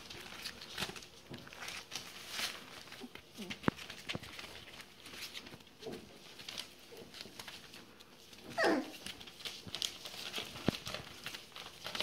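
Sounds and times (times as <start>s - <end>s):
paws scratching on newspaper: 0.0s - 12.0s
puppies whimpering: 8.5s - 9.0s
puppy high cry: 8.5s - 9.0s.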